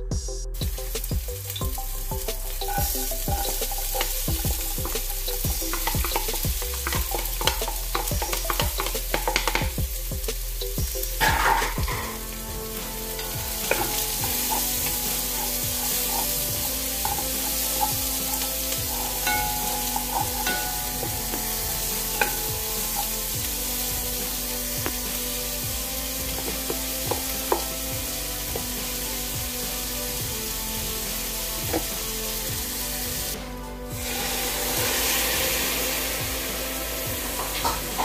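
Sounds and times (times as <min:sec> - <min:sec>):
chicken frying in a pot: 0:00.6 - 0:38.0
wooden spoon knocking and clattering: 0:02.7 - 0:09.8, 0:13.6 - 0:23.1.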